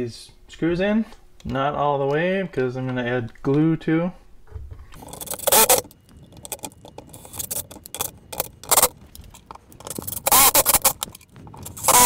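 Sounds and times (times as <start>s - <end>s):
cordless drill driving screws: 5.0s - 5.9s, 9.9s - 11.0s, 11.6s - 12.0s.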